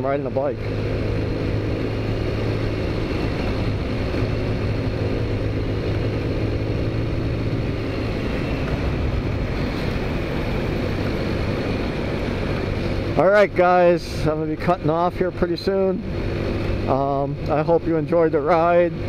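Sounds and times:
road and air rush: 0:00.0 - 0:19.0
scooter engine cruising: 0:00.0 - 0:19.0.

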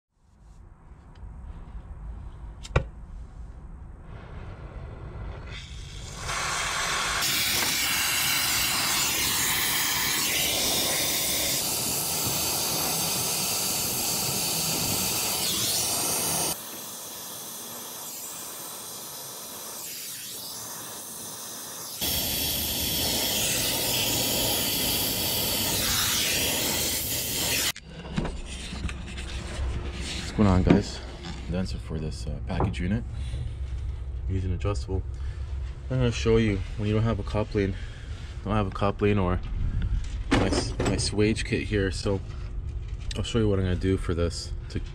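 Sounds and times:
gas hissing from brazing torch: 0:04.0 - 0:27.8.

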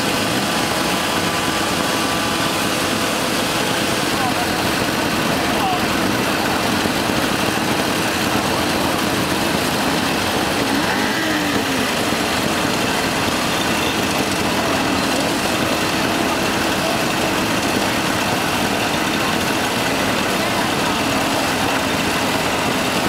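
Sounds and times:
mopeds idling and revving: 0:00.0 - 0:23.0
single engine revving: 0:06.8 - 0:23.0.

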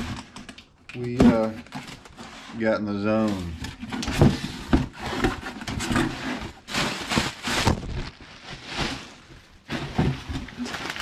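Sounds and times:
plastic wrapping crinkling: 0:06.4 - 0:11.0.

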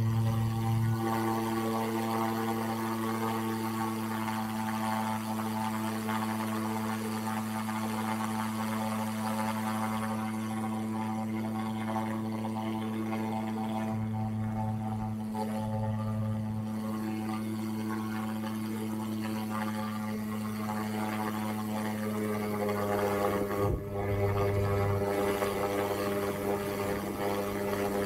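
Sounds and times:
low-pitched drone: 0:00.0 - 0:28.0.

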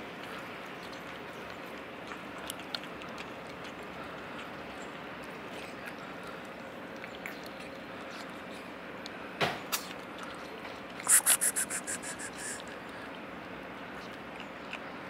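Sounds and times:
cats crunching dry kibble: 0:00.0 - 0:09.1
outdoor background noise: 0:00.0 - 0:15.0
faint scattered ticks: 0:11.0 - 0:12.6.

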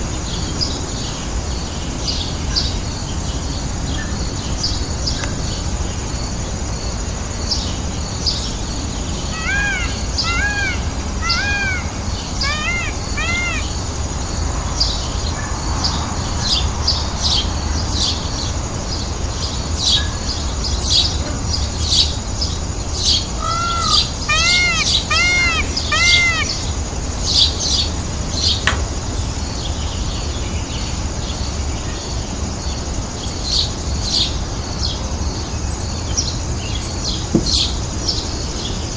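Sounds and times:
small birds chirping: 0:07.5 - 0:15.3, 0:15.9 - 0:32.0
peafowl calling: 0:09.3 - 0:13.9, 0:23.2 - 0:27.8.

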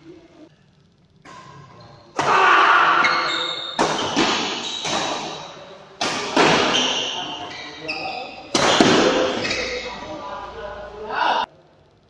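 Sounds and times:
shoe squeaks: 0:01.8 - 0:02.1, 0:03.0 - 0:05.5, 0:06.6 - 0:10.1
racket striking shuttlecock: 0:03.0 - 0:07.2, 0:08.5 - 0:09.4.

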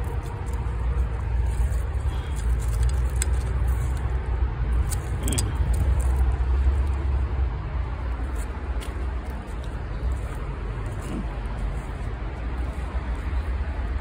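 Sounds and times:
rustling: 0:00.0 - 0:07.1.

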